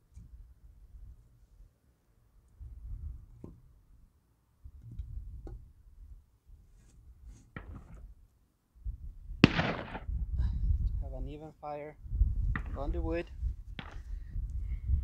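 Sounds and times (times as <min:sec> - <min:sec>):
wind rumble on microphone: 0:02.5 - 0:03.6, 0:04.6 - 0:08.2, 0:08.8 - 0:15.0
wooden knocks of firewood: 0:07.5 - 0:08.1, 0:13.7 - 0:14.2.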